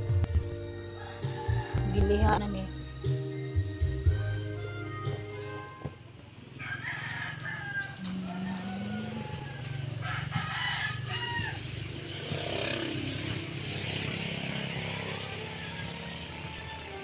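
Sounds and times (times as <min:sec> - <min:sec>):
rooster crowing: 0:00.9 - 0:02.1, 0:06.5 - 0:12.2.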